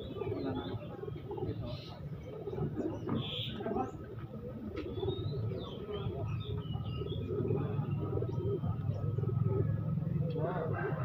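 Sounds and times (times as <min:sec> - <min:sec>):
small birds chirping: 0:00.0 - 0:10.4
pigeons cooing: 0:00.0 - 0:11.0.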